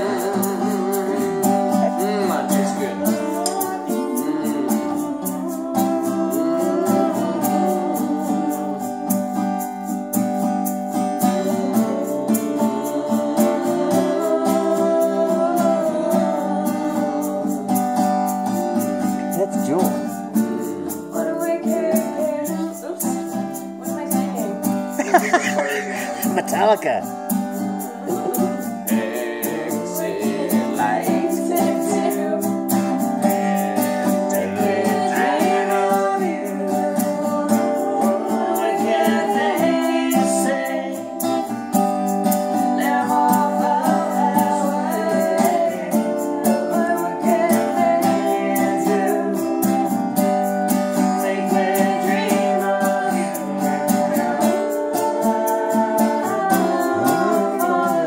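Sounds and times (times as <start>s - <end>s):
person singing: 0.0s - 9.7s, 11.0s - 18.3s, 19.0s - 41.7s, 42.5s - 58.0s
acoustic guitar strumming: 0.0s - 58.0s.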